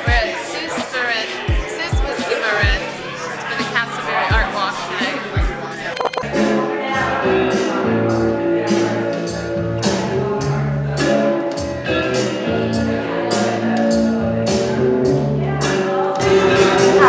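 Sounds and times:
music with steady beat: 0.0s - 6.6s.

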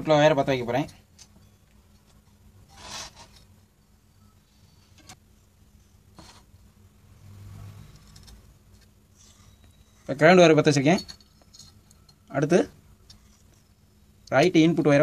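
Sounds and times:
low steady hum: 0.0s - 15.0s
wire rubbing on circuit board: 2.7s - 3.5s.

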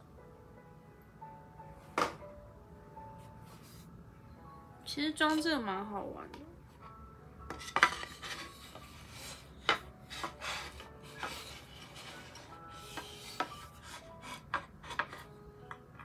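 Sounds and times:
music: 0.0s - 16.0s
wood and metal scraping: 7.5s - 15.3s.

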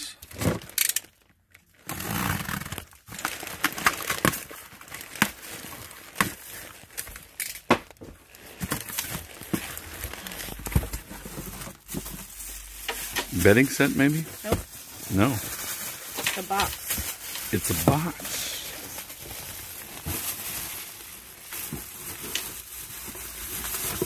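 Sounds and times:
packaging crinkling and tearing: 0.2s - 24.0s.

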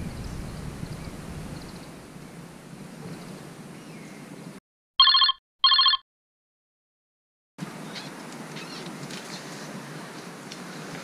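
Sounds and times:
wind on open water: 0.0s - 3.6s.

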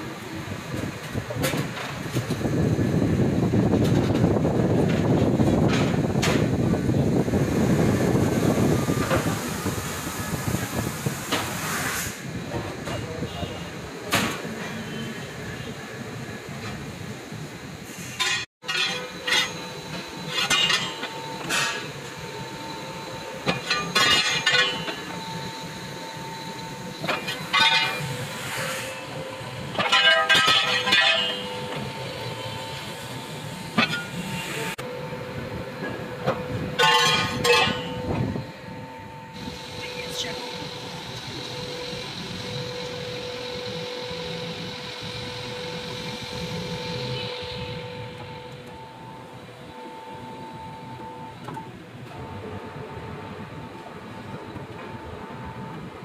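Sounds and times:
bending machine motor humming: 18.9s - 56.0s
sheet steel clanking and scraping: 20.3s - 21.9s, 23.5s - 25.2s, 27.0s - 28.2s, 29.8s - 31.5s, 36.8s - 38.2s.

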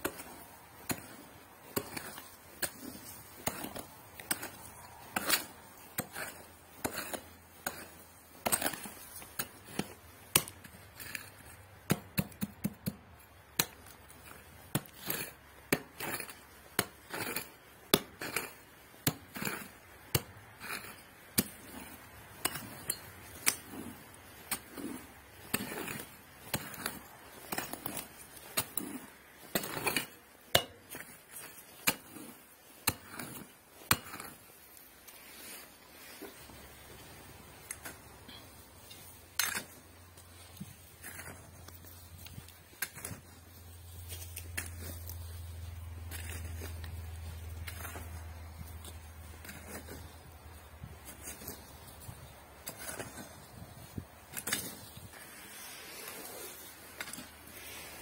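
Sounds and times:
digging tool striking stony soil: 0.0s - 34.5s, 37.5s - 43.4s, 44.0s - 45.1s, 45.8s - 58.0s
gritty scraping: 0.0s - 58.0s.

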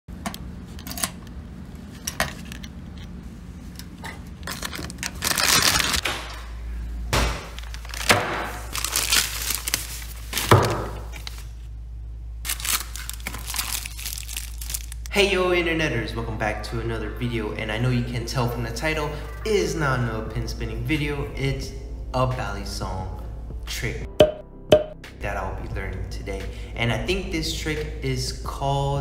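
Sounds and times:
plastic bag tearing and crinkling: 4.5s - 6.4s, 7.5s - 11.5s, 12.4s - 15.1s.

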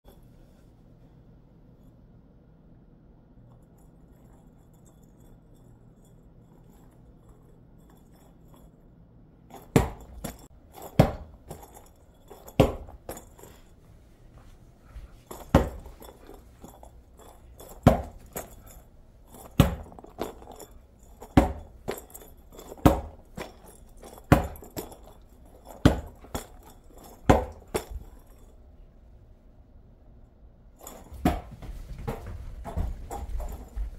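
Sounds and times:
ball knocking on floor: 9.6s - 11.8s, 12.4s - 13.5s, 15.3s - 16.1s, 17.7s - 18.4s, 21.2s - 22.2s, 30.9s - 33.9s.

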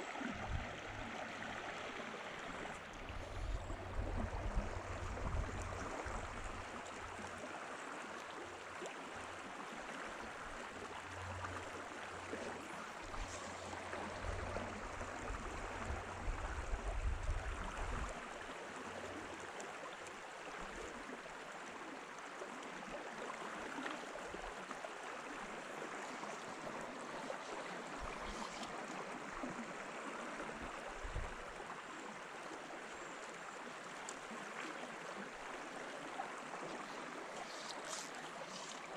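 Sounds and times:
river water rushing: 23.2s - 38.9s.

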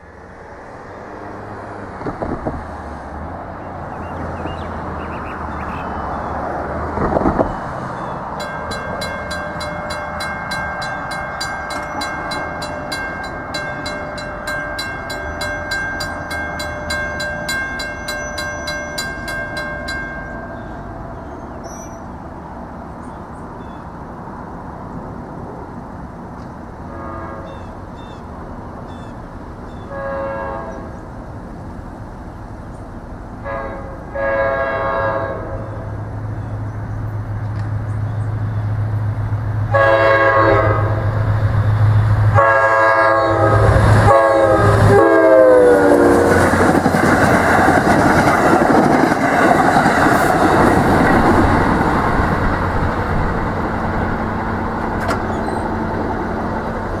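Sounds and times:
wind buffeting microphone: 1.8s - 5.0s, 45.6s - 57.0s
distant pulsing high chord: 8.2s - 22.0s.

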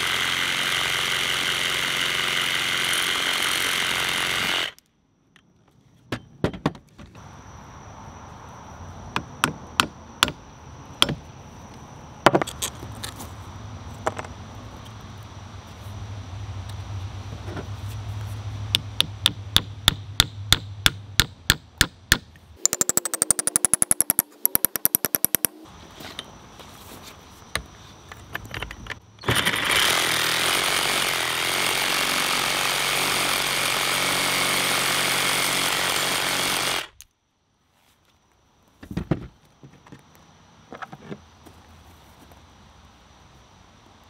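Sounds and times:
reciprocating saw cutting: 0.0s - 4.8s, 22.6s - 25.7s, 29.2s - 37.0s.

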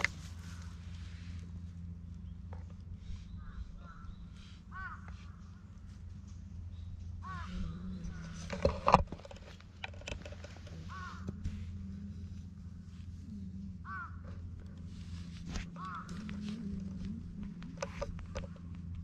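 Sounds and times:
crow cawing: 3.4s - 5.4s, 7.2s - 7.7s, 10.9s - 11.4s, 13.8s - 14.3s, 15.8s - 16.4s.

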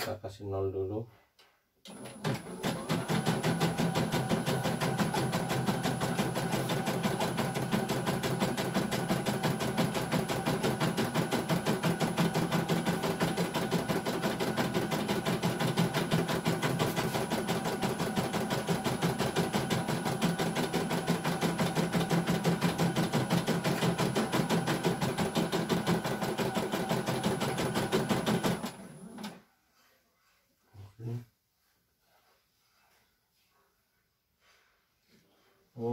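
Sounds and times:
embroidery machine stitching: 1.9s - 29.4s.

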